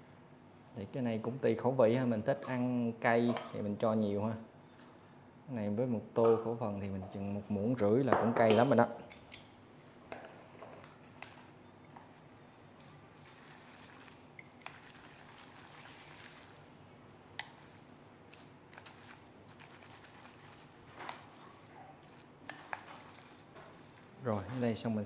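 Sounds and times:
noodles squishing wetly: 11.0s - 25.0s.

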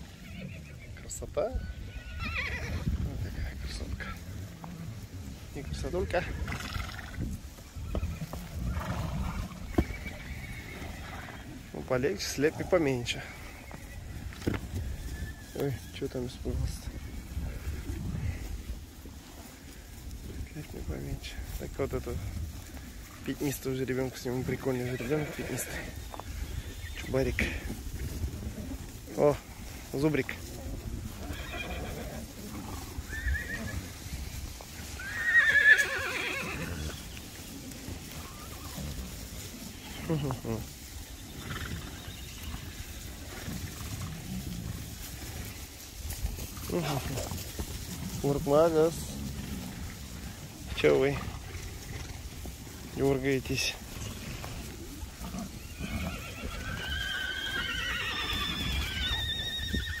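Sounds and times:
horse whinnying: 0.0s - 4.8s, 5.6s - 11.8s, 13.0s - 16.2s, 24.5s - 27.7s, 30.9s - 37.2s, 38.0s - 40.5s, 41.2s - 44.8s, 53.6s - 60.0s.

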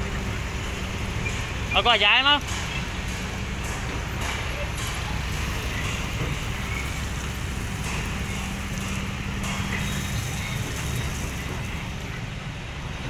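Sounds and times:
dump truck engine: 0.0s - 13.0s
excavator diesel engine running: 0.0s - 13.0s.

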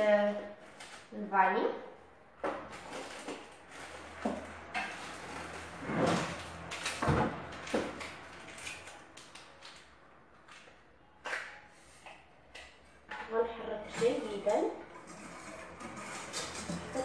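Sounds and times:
kitchen knocks and clatters: 2.4s - 8.9s, 11.3s - 17.0s.

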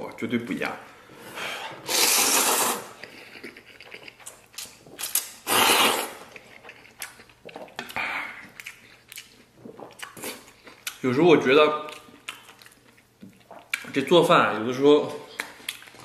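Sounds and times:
man slurping noodles: 1.3s - 3.1s, 5.4s - 6.3s
wet chewing clicks: 3.0s - 11.0s, 11.8s - 14.0s.

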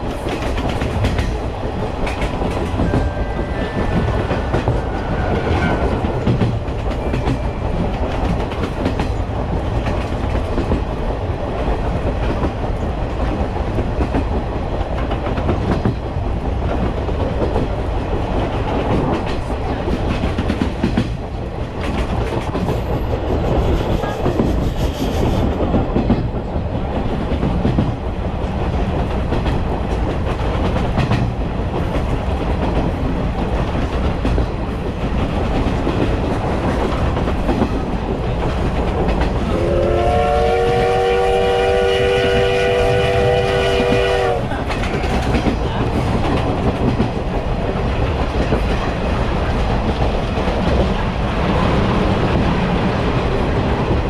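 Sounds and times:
train rumbling: 0.0s - 54.0s.

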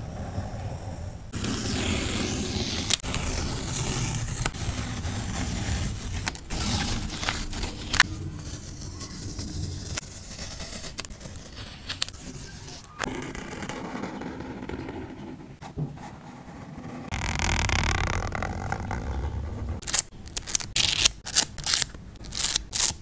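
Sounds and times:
tape peeling off paper: 1.4s - 12.8s, 17.1s - 23.0s.

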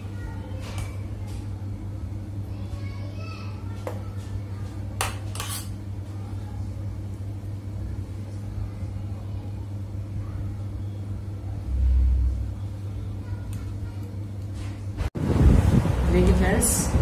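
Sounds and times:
steady low hum: 0.0s - 17.0s
low rumble: 11.5s - 13.0s, 15.1s - 17.0s.

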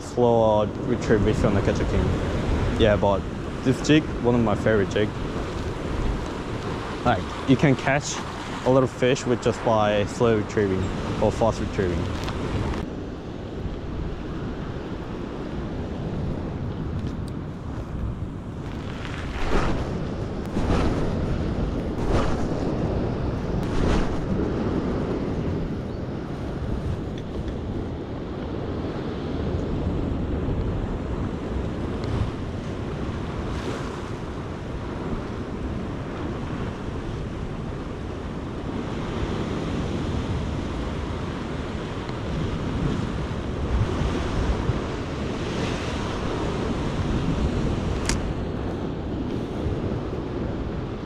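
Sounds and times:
surf washing against rocks: 0.0s - 12.8s, 17.9s - 25.3s, 30.4s - 51.0s
wind buffeting microphone: 0.0s - 51.0s.

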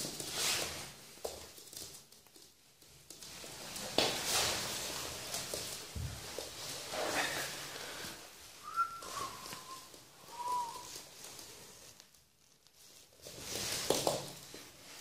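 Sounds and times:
puppy scuffling on wooden floor: 0.0s - 15.0s
rustling and pattering: 0.0s - 15.0s
thin whistle-like tones: 8.6s - 11.0s.

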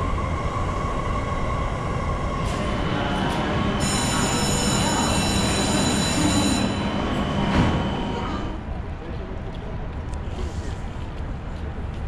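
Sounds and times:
train rumble: 0.0s - 12.0s
high-pitched train squeal: 2.4s - 8.6s.

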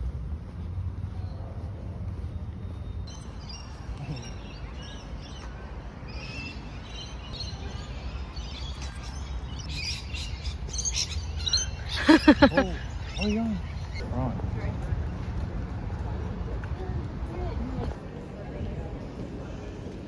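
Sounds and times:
birds chirping: 0.0s - 15.6s.

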